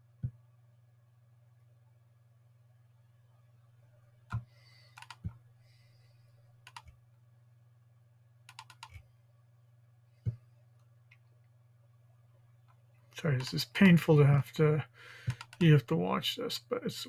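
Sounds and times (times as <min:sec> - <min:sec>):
computer mouse clicking: 0:04.3 - 0:05.4, 0:06.6 - 0:07.0, 0:08.5 - 0:09.0, 0:15.3 - 0:15.6.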